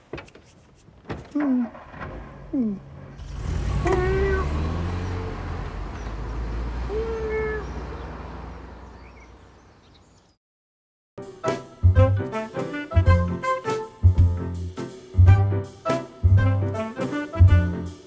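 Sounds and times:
car driving away rumble: 1.7s - 9.8s
cat meowing: 3.9s - 4.6s, 6.9s - 7.7s.

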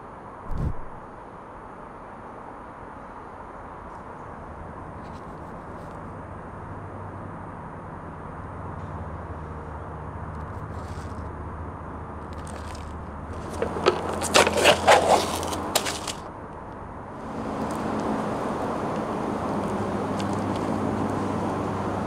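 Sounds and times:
foil lid peeling crackle: 12.4s - 16.3s.

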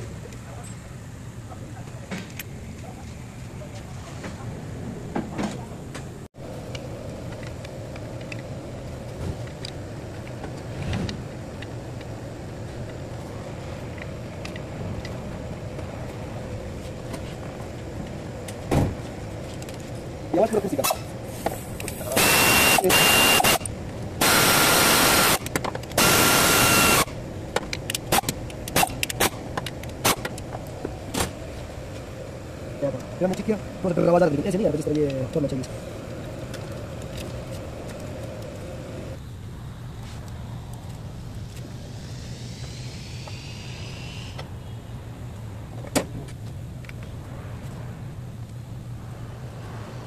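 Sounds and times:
low mechanical hum: 0.0s - 50.0s
pneumatic air ratchet whirring: 20.8s - 27.2s, 27.9s - 29.4s, 41.7s - 44.5s.

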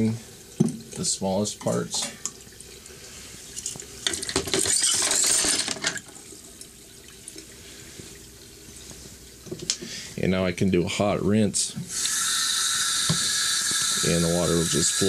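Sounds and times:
trickle of water: 0.0s - 5.0s, 5.9s - 10.3s
metal parts clattering: 4.1s - 6.0s.

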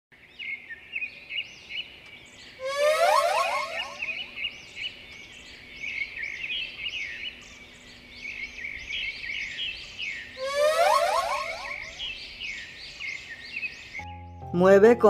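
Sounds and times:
small birds chirping: 0.2s - 14.5s
quick rising bird whistles: 2.6s - 4.3s, 10.4s - 12.2s.

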